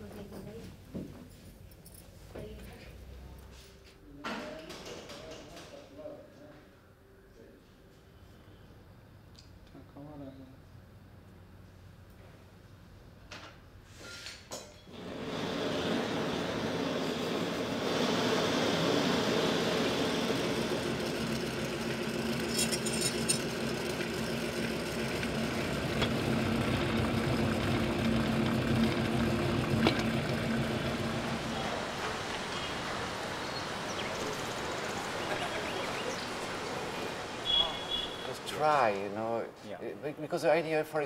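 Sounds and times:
rolling mill humming: 0:14.9 - 0:39.1.

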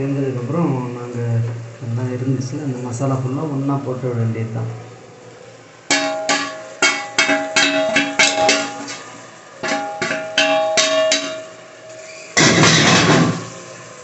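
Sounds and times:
ladle striking a metal plate: 0:05.9 - 0:11.6, 0:12.4 - 0:13.6.

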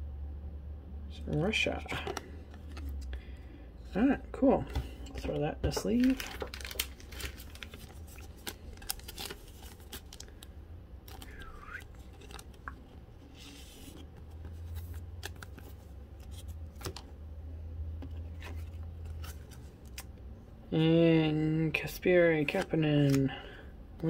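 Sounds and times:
card scraping against plastic sleeve: 0:04.7 - 0:10.3, 0:11.1 - 0:17.1, 0:22.4 - 0:23.3.

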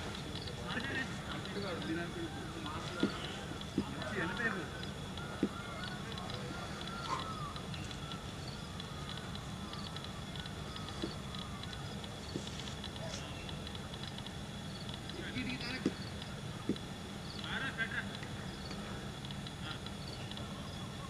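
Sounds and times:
faint distant voices: 0:00.0 - 0:21.0
steady low hum: 0:00.0 - 0:21.0.

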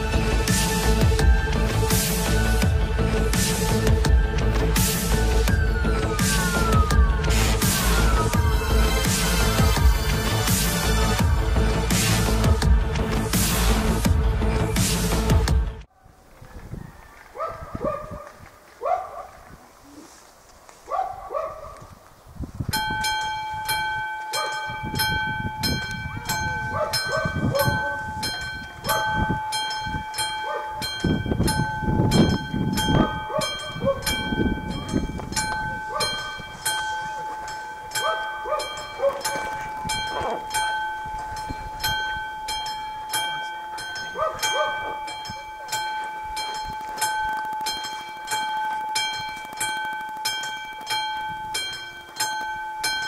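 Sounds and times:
dog barking: 0:17.4 - 0:19.4, 0:20.9 - 0:21.9, 0:24.3 - 0:24.7, 0:26.6 - 0:28.2, 0:28.8 - 0:29.2, 0:30.4 - 0:30.8, 0:33.2 - 0:34.2, 0:35.9 - 0:36.3, 0:37.0 - 0:37.4, 0:38.0 - 0:40.6, 0:44.1 - 0:45.1
level-crossing bell ringing: 0:22.8 - 0:53.0.

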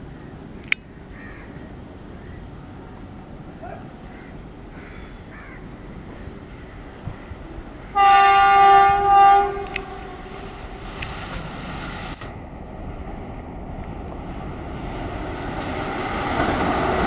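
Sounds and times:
low rumble of locomotives: 0:00.0 - 0:17.0
electric locomotive horn blast: 0:07.6 - 0:10.8.

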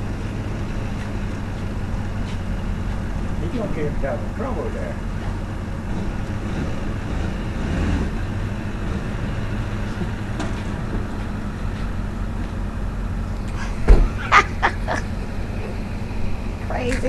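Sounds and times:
truck engine droning: 0:00.0 - 0:17.0
loud knock: 0:13.9 - 0:14.2.

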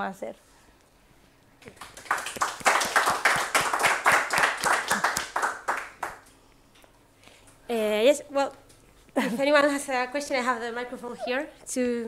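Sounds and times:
audience applauding: 0:01.6 - 0:06.2.

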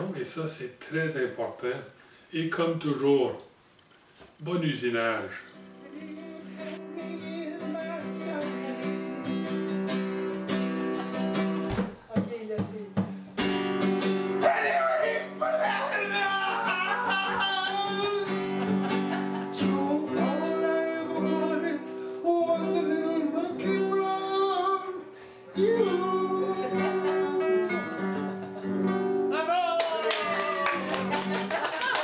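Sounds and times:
strummed acoustic guitar: 0:05.5 - 0:29.4
person singing: 0:05.8 - 0:09.6, 0:14.4 - 0:28.2.

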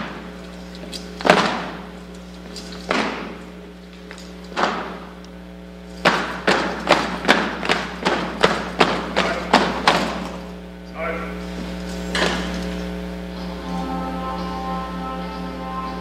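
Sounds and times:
low steady hum: 0:00.0 - 0:16.0
boot heels on hard floor: 0:05.9 - 0:10.5.

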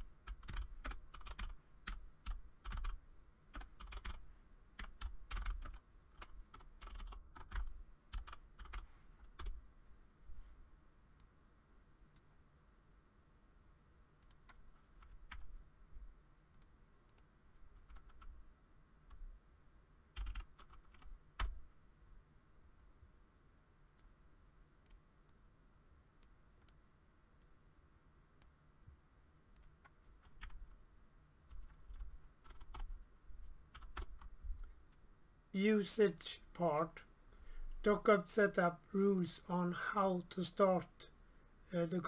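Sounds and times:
typing on computer keyboard: 0:00.1 - 0:04.2, 0:04.8 - 0:09.6, 0:16.6 - 0:18.4, 0:20.2 - 0:21.6, 0:29.6 - 0:30.7, 0:31.5 - 0:33.0, 0:33.7 - 0:34.3.

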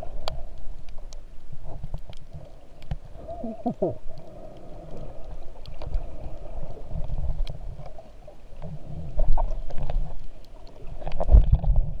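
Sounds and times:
underwater water swishes: 0:00.0 - 0:12.0
small clicks: 0:00.1 - 0:03.1, 0:04.1 - 0:08.0.

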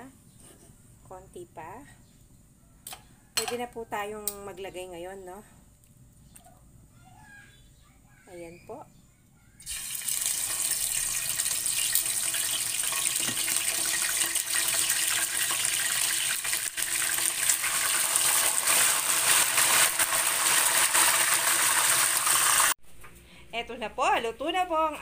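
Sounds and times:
fish sizzling in hot oil: 0:09.6 - 0:22.8.

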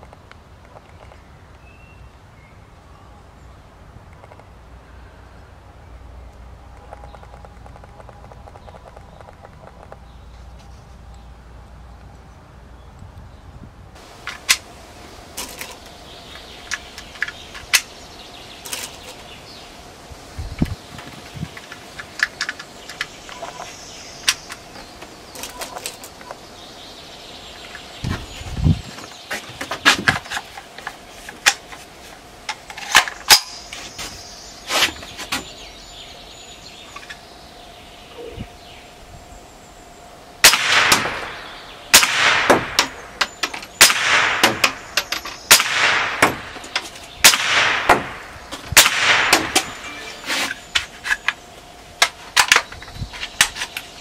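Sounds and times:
clicks and sharp cracks: 0:14.2 - 0:14.7, 0:15.4 - 0:18.0, 0:20.6 - 0:26.4, 0:29.0 - 0:34.2, 0:40.4 - 0:53.9
rifle shots with echo: 0:40.4 - 0:43.2, 0:43.8 - 0:46.6, 0:47.2 - 0:49.8.

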